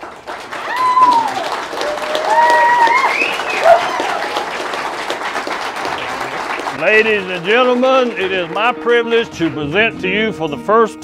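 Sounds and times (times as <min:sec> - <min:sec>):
crowd applauding and cheering: 0:00.0 - 0:09.6
whoops: 0:00.6 - 0:04.6.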